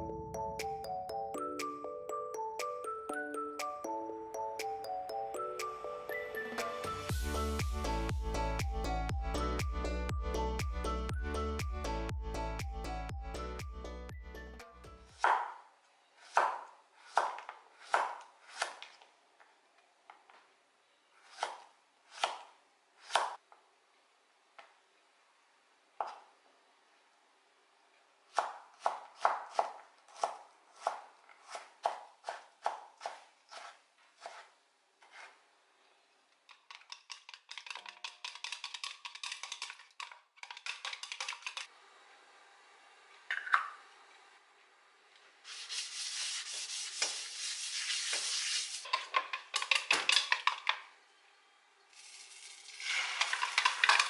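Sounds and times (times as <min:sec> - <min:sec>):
knife chopping on wooden board: 0:15.2 - 0:15.6, 0:16.3 - 0:18.9, 0:21.3 - 0:23.4, 0:28.4 - 0:34.5.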